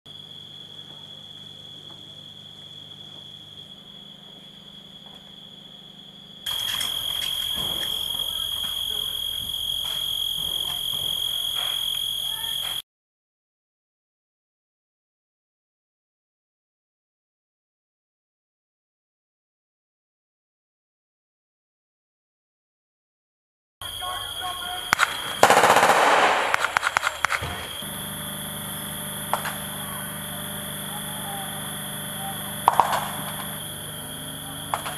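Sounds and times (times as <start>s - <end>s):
night insects chirring: 0.1s - 12.8s, 23.8s - 34.9s
gunshots: 24.9s - 27.8s, 32.6s - 33.4s
rapid automatic gunfire: 24.9s - 27.8s, 32.6s - 33.4s.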